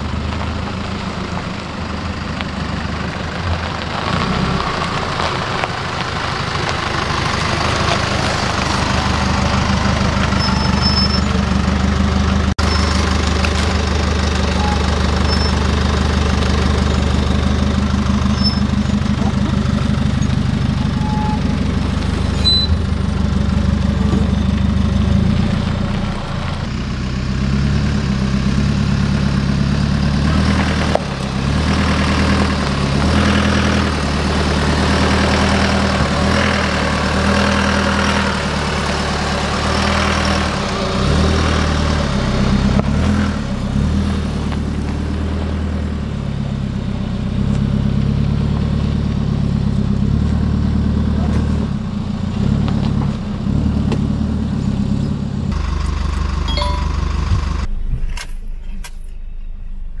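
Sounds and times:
diesel engine under load: 0.0 - 60.0.

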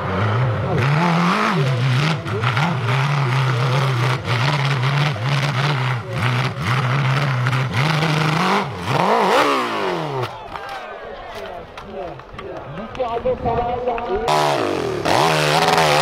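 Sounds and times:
dirt bike engine revving: 0.0 - 10.4, 14.2 - 16.0.

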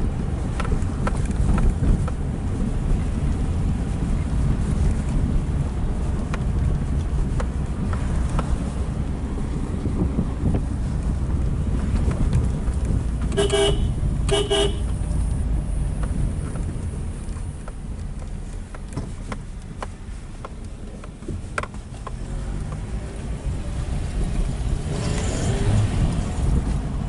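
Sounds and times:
car road and engine rumble: 0.0 - 27.0
car horn toots: 13.3 - 15.0.

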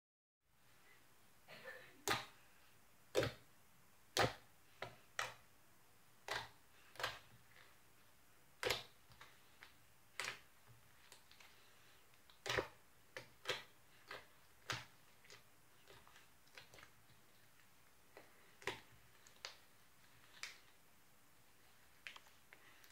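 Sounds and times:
slime clicking and popping: 6.2 - 7.7, 8.6 - 10.5, 12.2 - 16.9.

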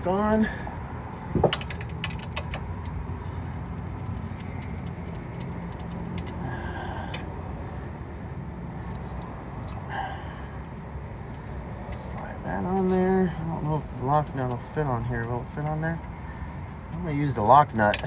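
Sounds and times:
low traffic rumble: 0.0 - 18.0
wrench and nut clinking: 1.4 - 6.4.

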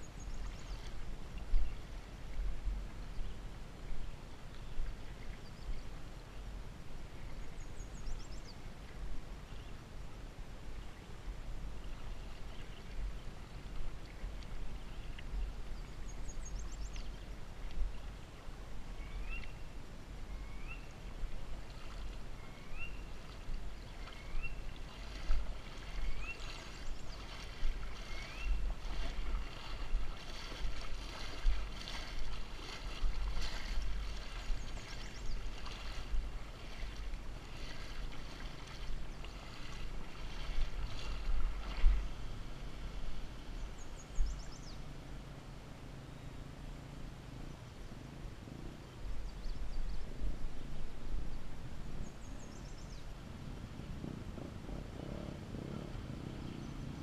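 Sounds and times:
water sloshing and lapping: 0.0 - 3.3, 11.6 - 19.6, 20.6 - 44.6
steady low rumble: 0.0 - 57.0
small splashes: 21.5 - 42.7.

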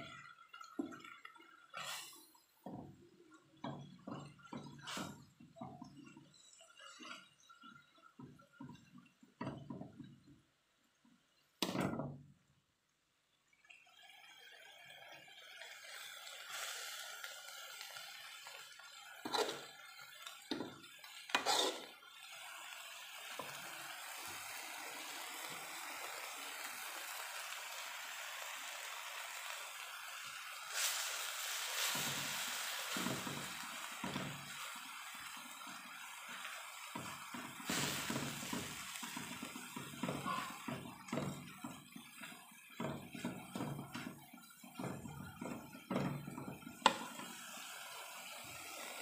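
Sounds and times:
food sizzling in a wok: 0.0 - 10.2, 14.0 - 49.0
metal spatula scraping a pan: 19.2 - 19.8, 21.3 - 22.0.

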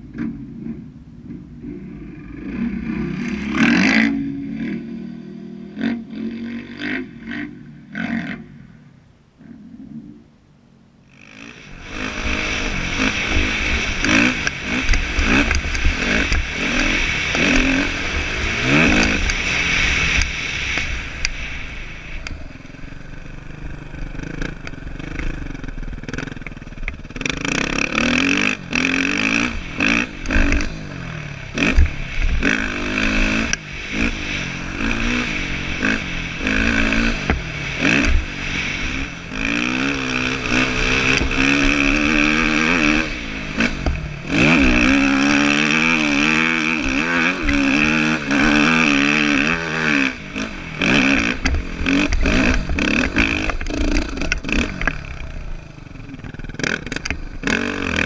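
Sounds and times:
dirt bike engine revving: 0.0 - 8.6, 11.1 - 58.0
rushing hiss: 11.3 - 24.4, 28.9 - 53.5.

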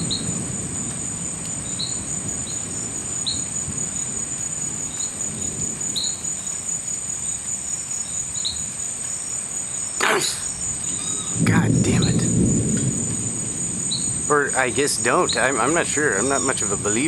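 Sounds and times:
crickets trilling: 0.0 - 17.0
low rumble: 11.4 - 16.9.

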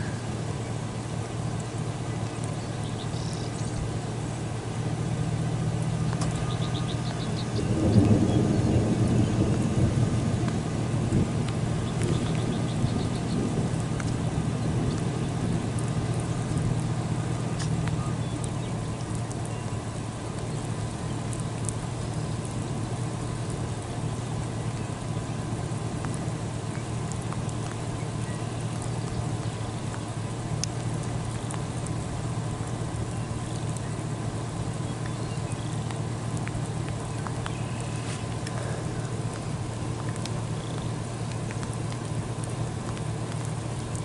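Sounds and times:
low rumbling noise: 0.0 - 44.0
faint ticks: 10.4 - 14.2, 17.5 - 22.6, 26.0 - 33.9, 34.7 - 44.0.

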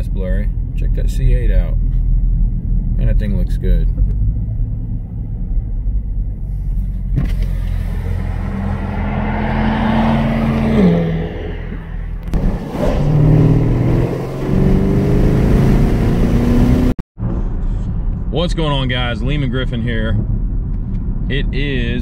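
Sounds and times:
car engine accelerating: 4.0 - 18.2.

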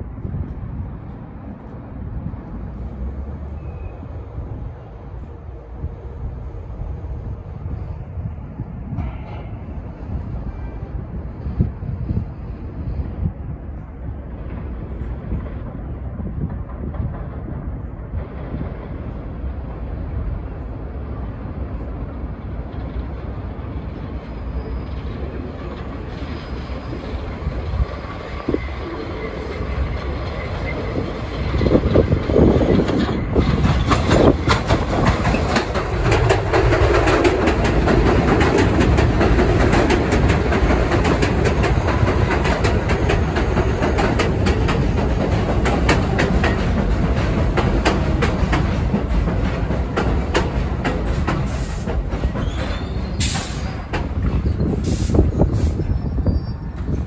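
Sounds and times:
train wheels clacking over rail joints: 8.9 - 10.3, 14.3 - 19.4, 25.0 - 56.0.

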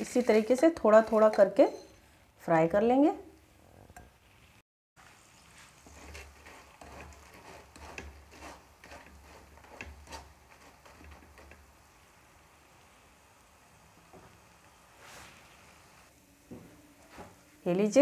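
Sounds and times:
lentils frying in hot oil: 0.0 - 1.6, 4.1 - 16.2.

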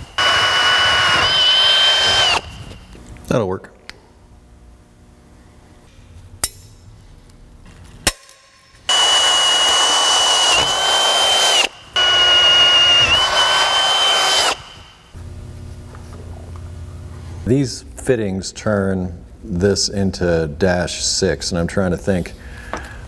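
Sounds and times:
cordless drill drilling metal: 0.0 - 2.8, 8.9 - 15.0.

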